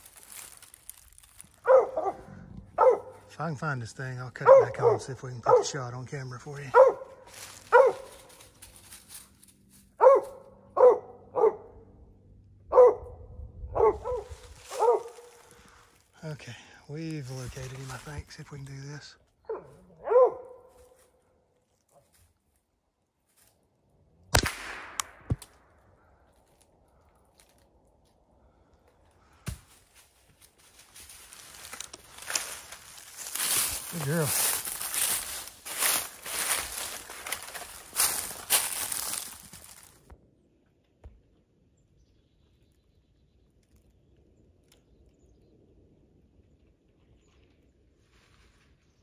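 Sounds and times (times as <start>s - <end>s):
footsteps in dry leaves: 0.0s - 3.3s, 6.5s - 10.5s, 14.0s - 16.1s, 17.2s - 18.4s, 20.6s - 22.6s, 29.5s - 40.1s
dog barking: 1.6s - 3.3s, 4.4s - 5.8s, 6.7s - 8.2s, 10.0s - 11.8s, 12.7s - 15.4s, 19.5s - 21.0s
rifle shot with echo: 24.3s - 25.6s.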